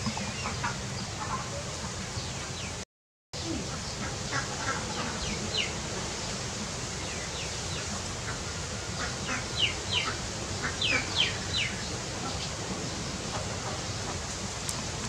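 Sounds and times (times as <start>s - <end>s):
steady background hiss: 3.4s - 15.0s.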